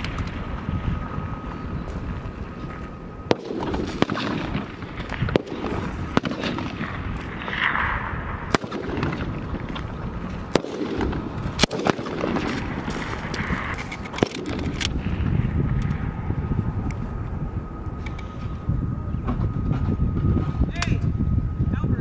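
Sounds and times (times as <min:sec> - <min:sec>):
steady background rush: 0:00.0 - 0:22.0
rifle shots cracking: 0:03.3 - 0:09.9, 0:10.5 - 0:15.0.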